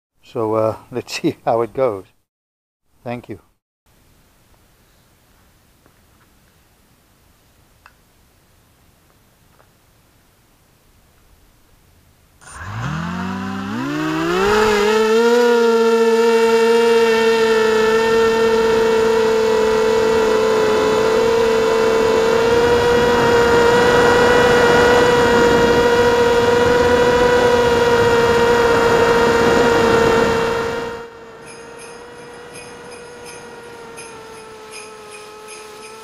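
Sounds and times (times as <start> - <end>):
drone motors whining: 12.4 - 36.0.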